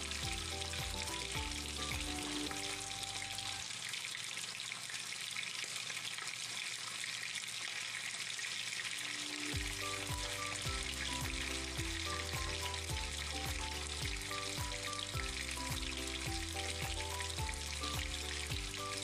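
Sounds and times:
background music: 0:00.0 - 0:03.6, 0:09.3 - 0:19.0
fish sizzling in oil: 0:00.0 - 0:19.0.

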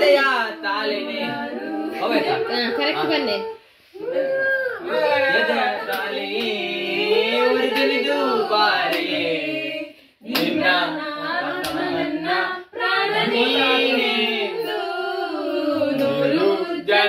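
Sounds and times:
group singing: 0:00.0 - 0:17.0
hand claps: 0:05.9 - 0:06.6, 0:07.7 - 0:08.0, 0:08.9 - 0:09.2, 0:10.3 - 0:10.7, 0:11.6 - 0:11.9.

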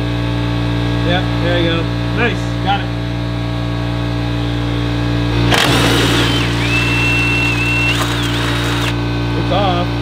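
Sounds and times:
impact wrench whine: 0:05.4 - 0:09.0.

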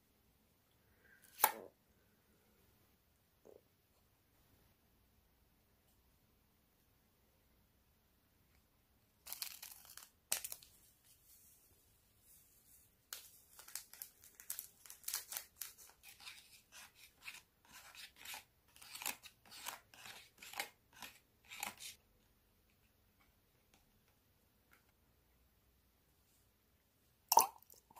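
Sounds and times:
scissors snipping foil packet: 0:09.2 - 0:10.7, 0:13.5 - 0:16.5
plastic spoon tapping and scraping: 0:15.7 - 0:22.0.

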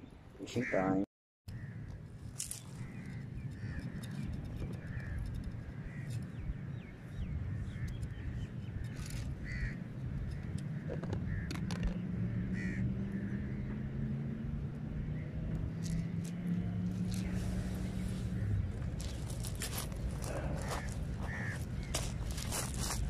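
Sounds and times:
crows cawing: 0:00.6 - 0:00.9, 0:01.5 - 0:01.9, 0:02.5 - 0:06.2, 0:09.4 - 0:13.6, 0:18.2 - 0:22.7
steady low hum: 0:01.5 - 0:23.0.

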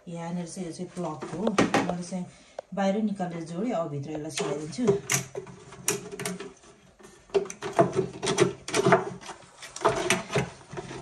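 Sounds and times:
knocks and scraping from handling fountain: 0:04.4 - 0:11.0.

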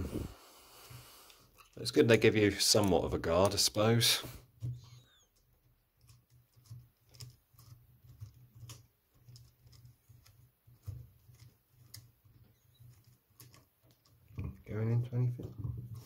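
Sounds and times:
faint clicks and light knocks: 0:04.5 - 0:16.0.

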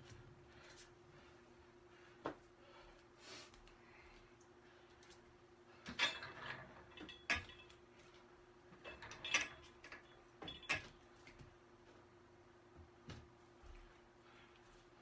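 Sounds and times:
steady low hum: 0:00.0 - 0:15.0
exercise equipment clanking: 0:05.8 - 0:07.8, 0:08.7 - 0:11.0.

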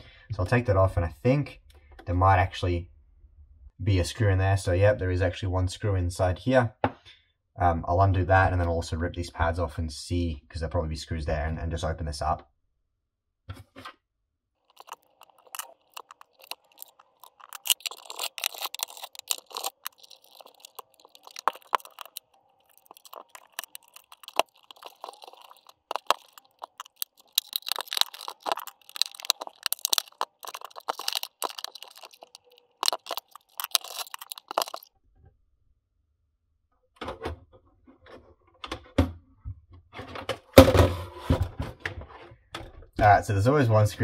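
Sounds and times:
screwdriver scraping plastic: 0:14.7 - 0:34.8
rubber feet peeling off plastic: 0:14.7 - 0:34.9.

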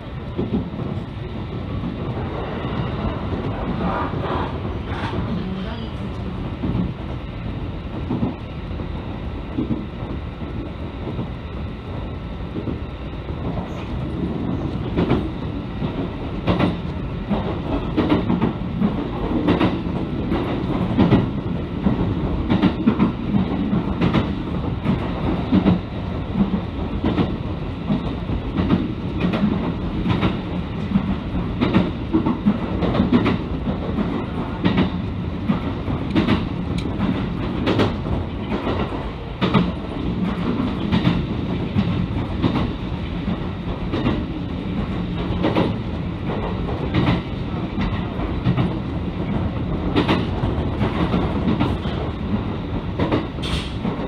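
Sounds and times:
train low rumble: 0:00.0 - 0:54.0
wheels clacking over rail joints: 0:14.8 - 0:54.0.

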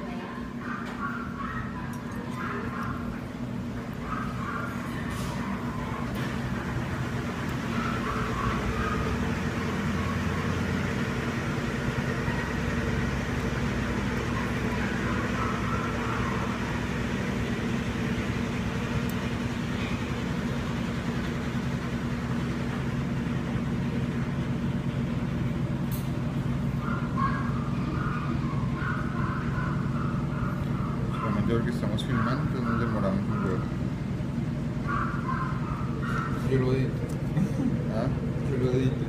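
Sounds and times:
machinery humming: 0:00.0 - 0:39.0.

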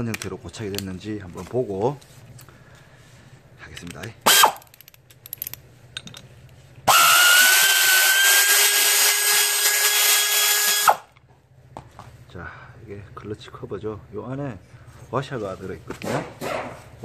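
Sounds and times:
power tool whining: 0:04.3 - 0:04.7, 0:06.9 - 0:11.1.

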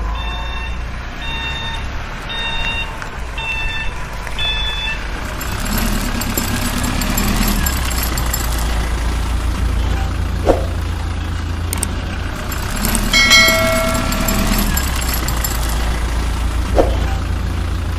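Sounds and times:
vehicle engine idling: 0:04.0 - 0:17.9.

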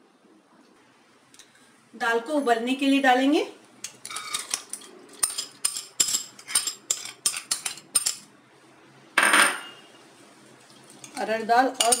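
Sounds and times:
steel spoon clinking on pot: 0:11.8 - 0:12.0.

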